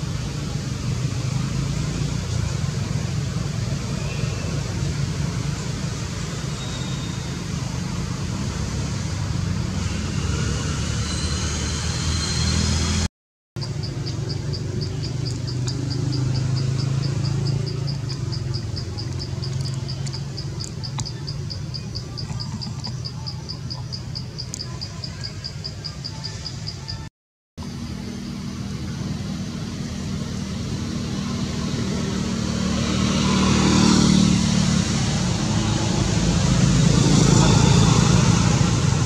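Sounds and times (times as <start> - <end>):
insect calling in high pulses: 13.6 - 27.0.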